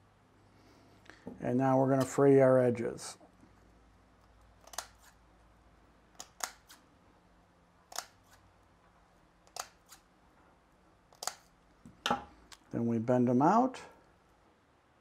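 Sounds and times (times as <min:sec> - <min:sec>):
scissors snipping screen: 0:04.6 - 0:05.2, 0:06.1 - 0:06.9, 0:07.8 - 0:08.4, 0:09.4 - 0:10.1, 0:11.1 - 0:11.6.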